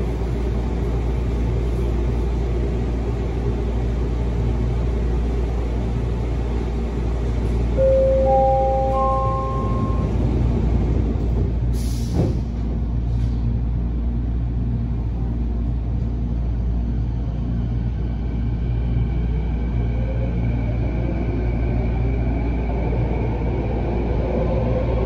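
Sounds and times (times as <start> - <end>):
train low rumble: 0.0 - 25.0
rising three-note chime: 7.8 - 10.1.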